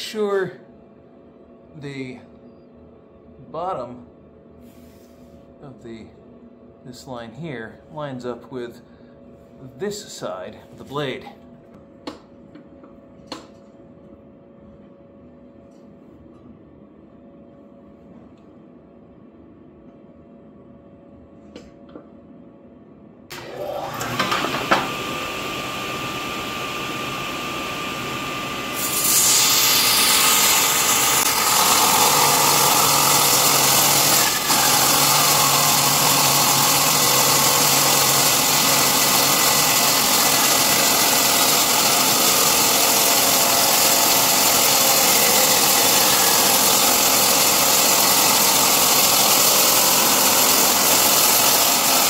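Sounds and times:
table saw running: 23.3s - 52.0s
saw cutting aluminum sheet: 26.9s - 52.0s.

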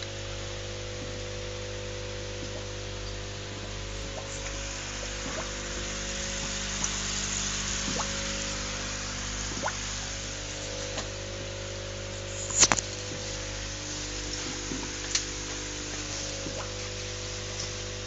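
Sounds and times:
aquarium air pump humming: 0.0s - 18.0s
bubbles fizzing and popping: 3.9s - 11.2s, 14.0s - 17.0s.

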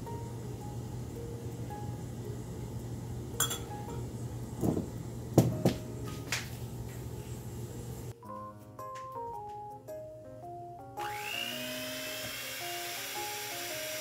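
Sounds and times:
steady low hum: 0.0s - 8.2s
measuring cup clinking on steel bowl: 3.4s - 3.7s
background music: 8.1s - 14.0s.

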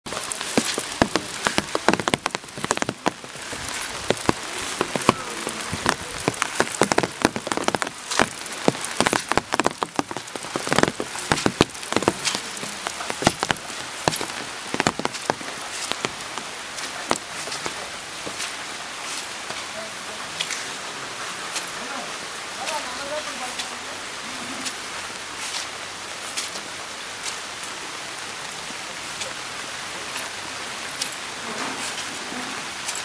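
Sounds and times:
steady rain falling: 0.0s - 33.0s
heavy drops tapping on a surface: 0.5s - 3.2s, 5.8s - 12.4s.

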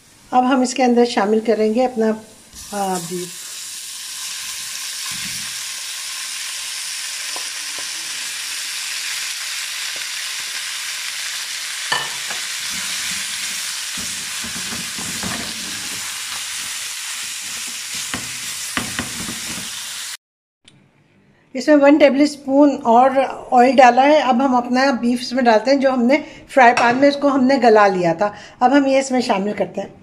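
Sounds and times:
meat sizzling in hot oil: 2.4s - 20.2s
wooden spatula scraping a pan: 12.6s - 19.8s.

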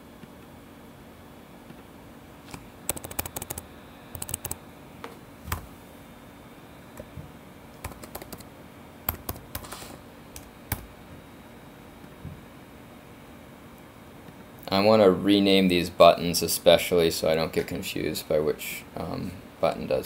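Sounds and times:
computer keyboard typing: 2.9s - 4.6s, 7.8s - 8.5s, 9.1s - 9.8s, 10.4s - 10.9s.

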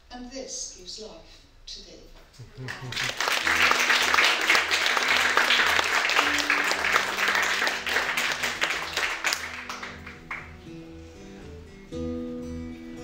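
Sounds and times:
audience applauding: 2.6s - 10.7s
acoustic guitar playing softly: 3.4s - 13.0s.

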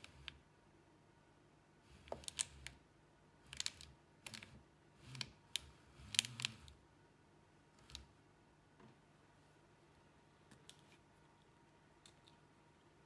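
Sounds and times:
window motor whirring with clicks: 3.5s - 6.8s.

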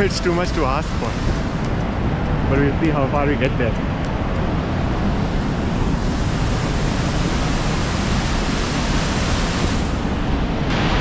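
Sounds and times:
whitewater rapids roaring: 0.0s - 1.7s.

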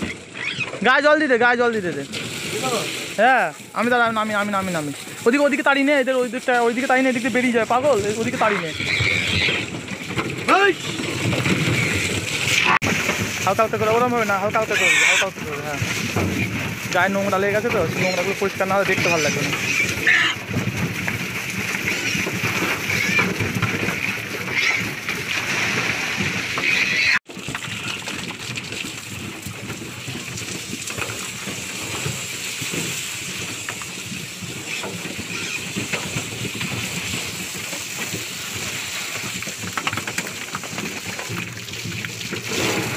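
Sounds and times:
piglets squealing: 0.0s - 0.8s, 8.4s - 9.8s, 14.6s - 15.4s, 19.0s - 20.4s, 21.8s - 22.2s, 22.8s - 23.4s, 24.4s - 25.0s, 26.5s - 27.2s, 34.7s - 35.8s
garden hose spraying water: 1.7s - 8.9s.

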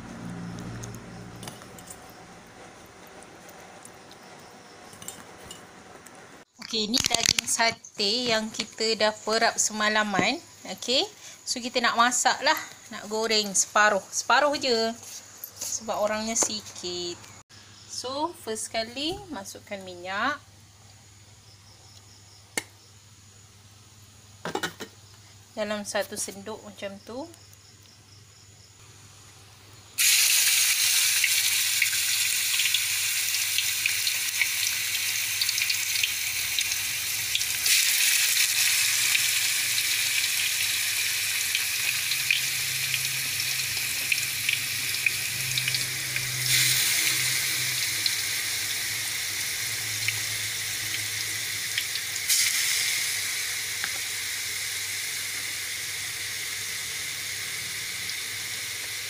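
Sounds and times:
meat sizzling in hot oil: 30.0s - 59.0s.

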